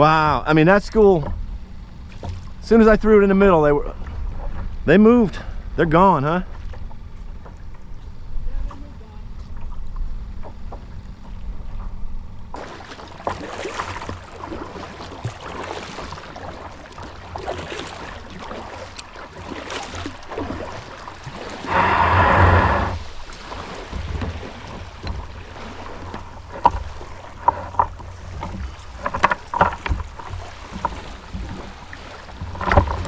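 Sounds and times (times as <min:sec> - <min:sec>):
water splashing against kayak hull: 0:00.9 - 0:33.0
rush of water: 0:12.5 - 0:33.0
low wind rumble: 0:21.4 - 0:23.3.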